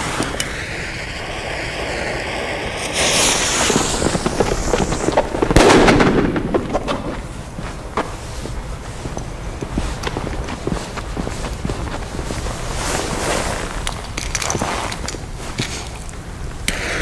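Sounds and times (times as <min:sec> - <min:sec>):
firecracker fuse hissing: 0:00.0 - 0:17.0
firecracker bang with echo: 0:01.9 - 0:07.3.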